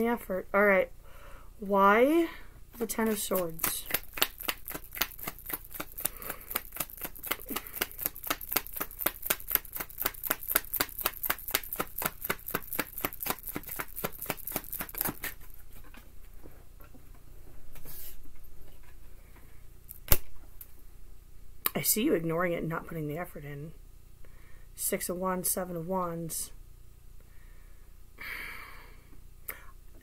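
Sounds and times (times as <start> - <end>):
cards being shuffled: 2.8 - 16.0.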